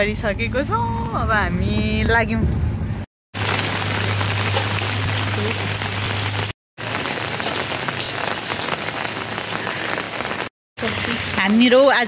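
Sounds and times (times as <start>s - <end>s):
rain on wet pavement: 3.4s - 12.0s.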